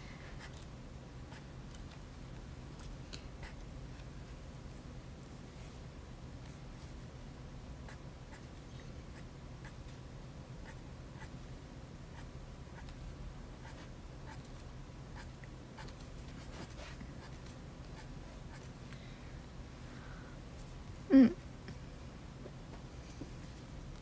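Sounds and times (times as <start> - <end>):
low room hum: 0.0 - 24.0
pen scratching on paper: 15.2 - 17.4.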